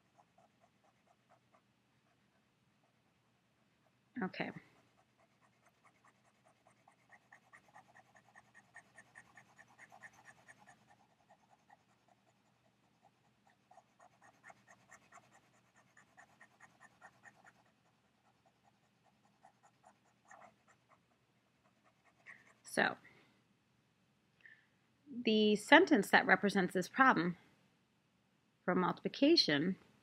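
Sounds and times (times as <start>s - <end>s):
stylus scratching: 0.0s - 1.6s, 4.2s - 21.0s, 21.6s - 22.7s.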